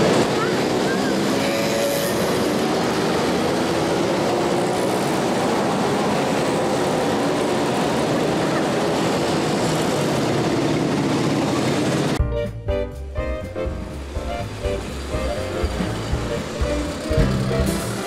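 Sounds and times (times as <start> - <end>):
music: 12.2 - 18.0
mopeds engine buzz: 14.8 - 18.0.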